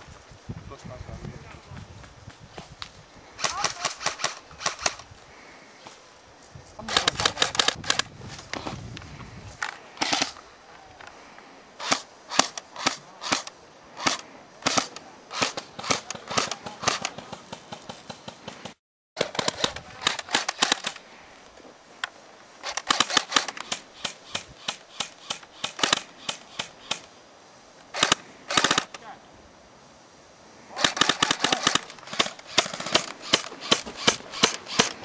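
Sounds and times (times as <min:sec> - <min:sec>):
airsoft guns firing: 0:03.4 - 0:05.0, 0:10.0 - 0:10.4, 0:11.8 - 0:21.0, 0:22.6 - 0:27.1, 0:27.9 - 0:29.0, 0:30.8 - 0:35.0.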